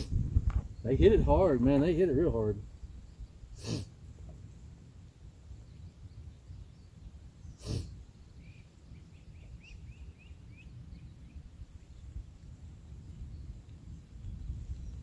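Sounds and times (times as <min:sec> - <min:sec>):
sharp sniffs: 0:03.6 - 0:04.0, 0:07.5 - 0:08.0
bird chirping faintly: 0:05.4 - 0:15.0.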